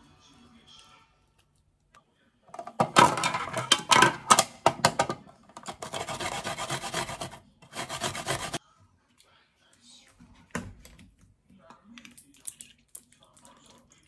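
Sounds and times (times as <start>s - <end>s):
garlic rasping on grater: 5.7s - 8.6s.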